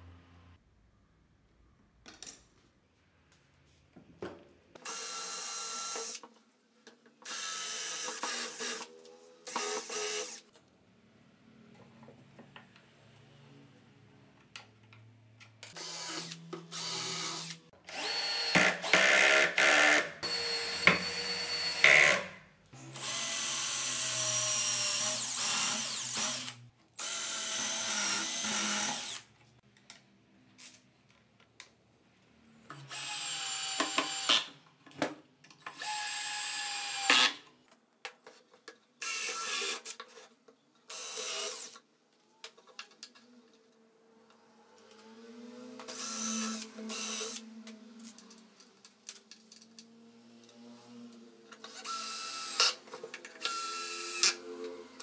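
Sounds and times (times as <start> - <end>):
cordless drill driving screws: 4.9 - 6.2, 7.2 - 10.4, 15.7 - 22.3, 22.9 - 29.3, 32.8 - 34.5, 40.9 - 41.8, 45.8 - 47.4, 51.6 - 54.4.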